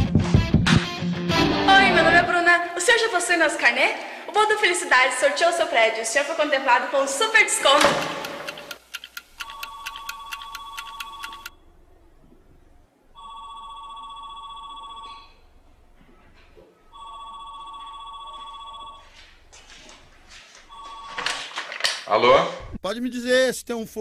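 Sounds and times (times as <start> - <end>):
electronic telephone ringing: 9.4 - 11.6, 13.2 - 15.5, 16.9 - 19.2, 20.7 - 21.4.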